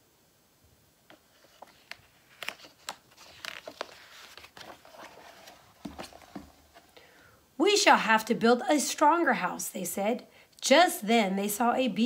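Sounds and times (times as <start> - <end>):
paper page turning: 1.1 - 7.0.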